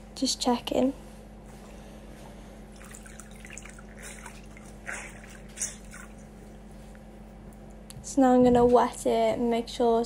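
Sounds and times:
water splashes: 2.8s - 6.2s.

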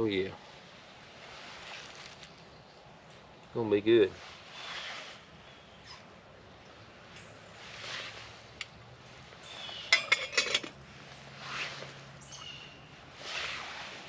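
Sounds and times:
soft swishing rustles: 0.0s - 9.9s, 10.8s - 14.0s
utensil clinking on steel pot: 9.9s - 10.8s.

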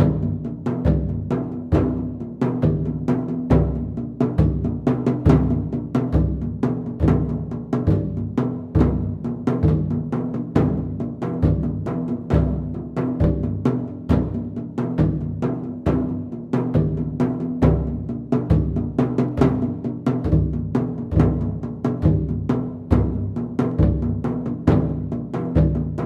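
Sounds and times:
instrumental music with drum beat: 0.0s - 26.0s.

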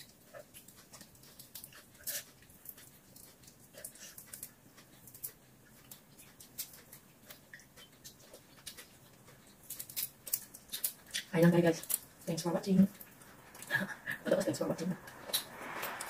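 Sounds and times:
shrimp shells crackling when peeled: 0.0s - 12.3s.

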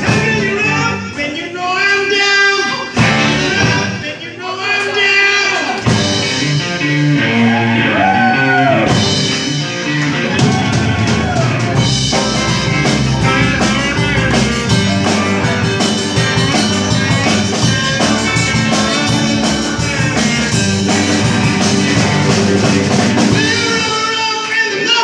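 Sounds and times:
drum kit: 0.0s - 1.5s, 2.6s - 4.2s, 5.5s - 24.8s
keyboards: 0.0s - 25.0s
electric guitars: 2.1s - 25.0s.

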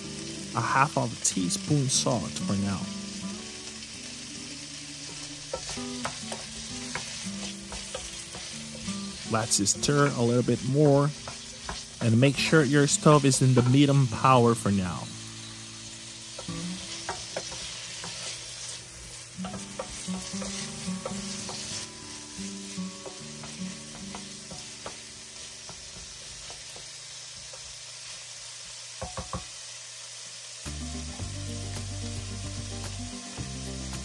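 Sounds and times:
peppers sizzling in oil: 0.0s - 34.0s
wooden spoon tapping a pan: 5.2s - 8.9s, 11.1s - 12.3s, 16.3s - 18.3s, 19.4s - 21.8s, 23.0s - 27.8s, 29.0s - 29.6s.

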